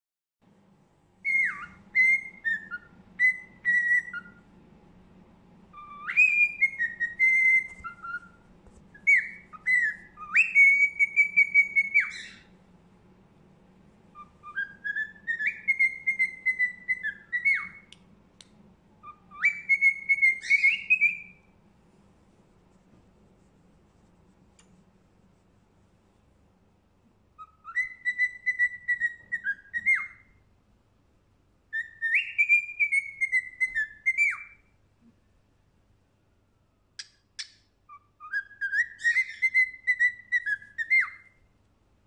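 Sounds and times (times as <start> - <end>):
cockatiel whistling a tune: 1.2 - 4.4, 5.7 - 12.5, 14.1 - 18.0, 19.0 - 21.6, 27.4 - 30.4, 31.7 - 34.7, 37.0 - 41.5.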